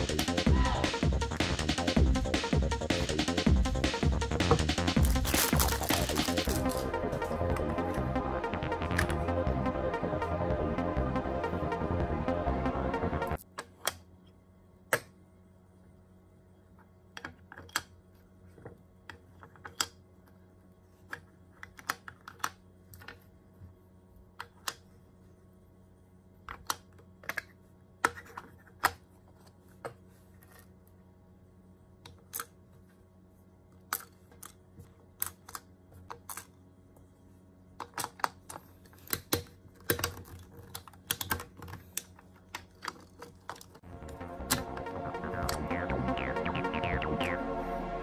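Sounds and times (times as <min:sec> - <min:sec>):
plastic toy parts clicking: 0:37.8 - 0:43.8.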